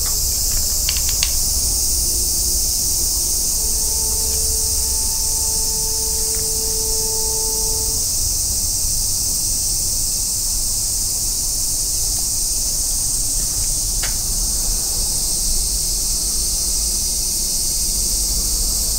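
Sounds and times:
low rumble: 0:00.0 - 0:08.6
high-pitched insect chorus: 0:00.0 - 0:18.9.

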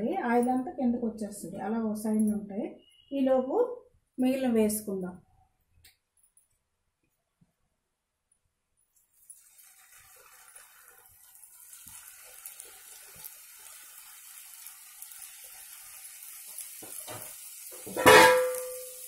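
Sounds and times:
dough sizzling in hot oil: 0:08.9 - 0:19.0.

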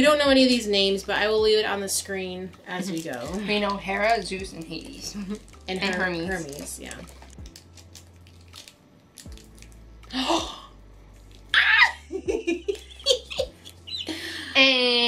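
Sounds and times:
small box clicks and rustle: 0:04.8 - 0:09.8
women laughing and giggling: 0:11.6 - 0:14.7.

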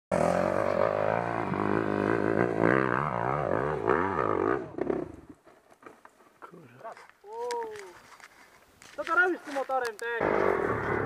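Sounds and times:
motorcycle engine revving: 0:00.1 - 0:05.4, 0:10.2 - 0:11.0.

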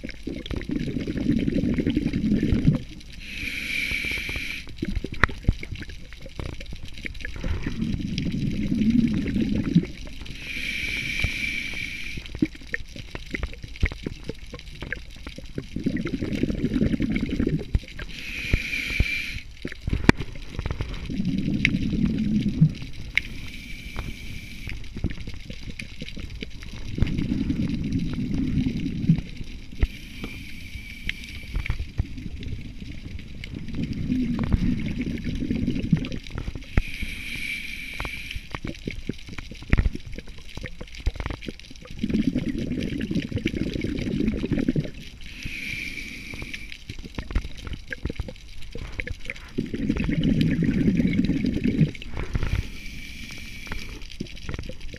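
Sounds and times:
exhaled bubbles gurgling: 0:00.0 - 0:54.9
regulator hiss on inhale: 0:03.1 - 0:05.0, 0:07.4 - 0:12.6, 0:17.9 - 0:25.2, 0:29.6 - 0:32.3, 0:34.0 - 0:38.8, 0:45.1 - 0:47.1, 0:51.8 - 0:54.2.

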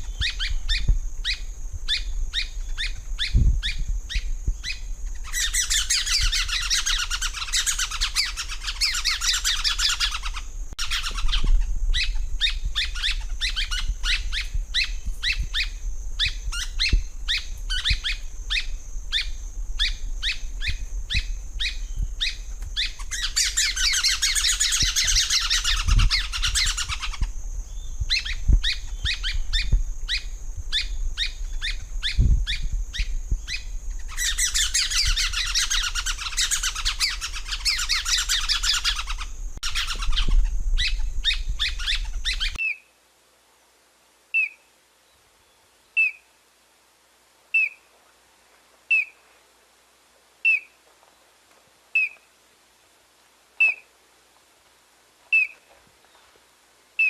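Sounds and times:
bird chattering rattle: 0:33.5 - 0:42.6.

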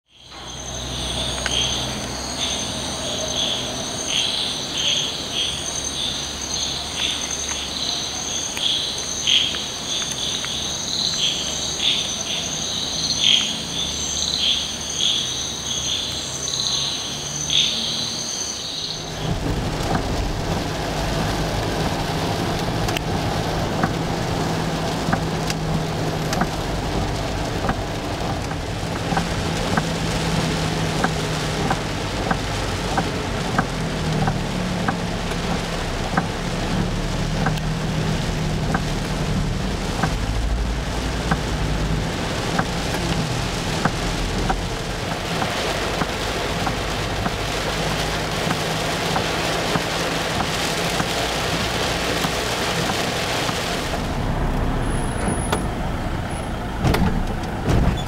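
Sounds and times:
low engine and road rumble: 0:00.0 - 0:58.0
crickets and insects trilling: 0:00.1 - 0:19.7
rain hitting car: 0:00.1 - 0:58.0.

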